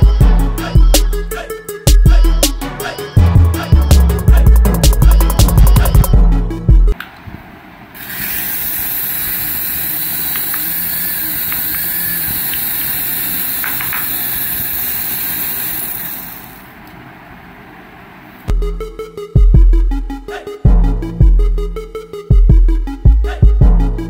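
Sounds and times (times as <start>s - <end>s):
toy helicopter rotor whirring: 8.0s - 16.7s.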